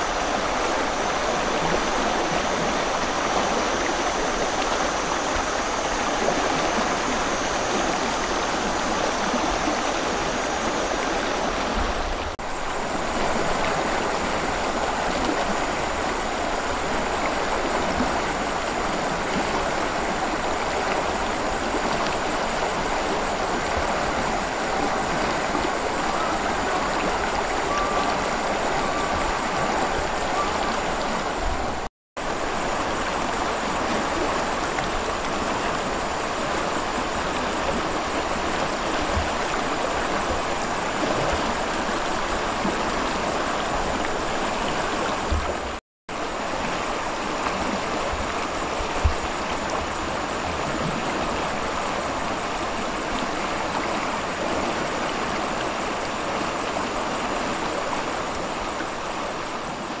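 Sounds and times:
river water flowing: 0.0 - 60.0.

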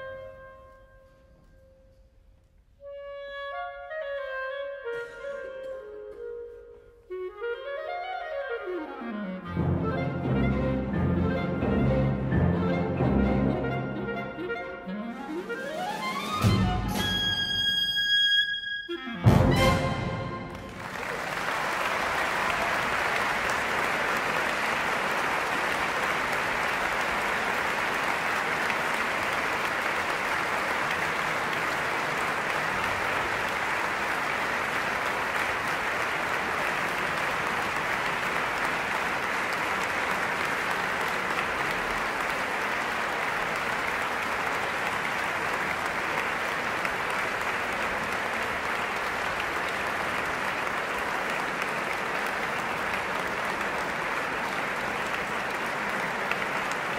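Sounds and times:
audience applauding: 19.5 - 56.9.

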